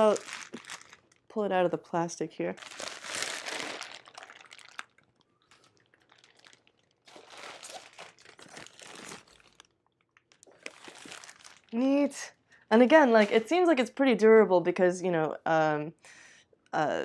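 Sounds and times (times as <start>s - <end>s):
plastic bag crinkling: 0.0s - 1.4s, 2.6s - 12.3s.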